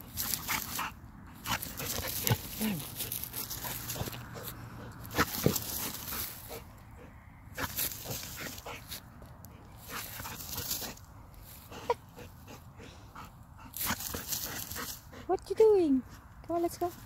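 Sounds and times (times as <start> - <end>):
dog chewing in grass: 0.0 - 6.8, 7.5 - 11.0.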